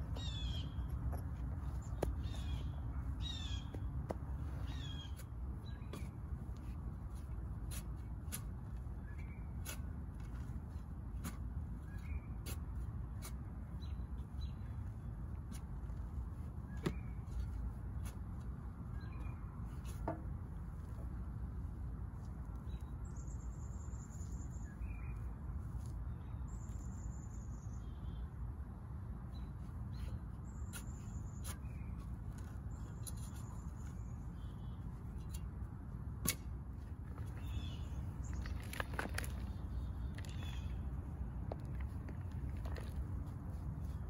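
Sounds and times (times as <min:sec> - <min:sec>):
low background rumble: 0:00.0 - 0:44.0
trowel scraping soil: 0:04.6 - 0:13.8, 0:30.1 - 0:34.5.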